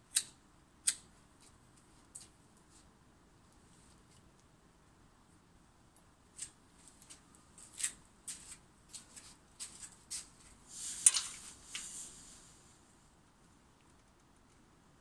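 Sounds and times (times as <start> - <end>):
light rustles and clicks: 6.4 - 12.0.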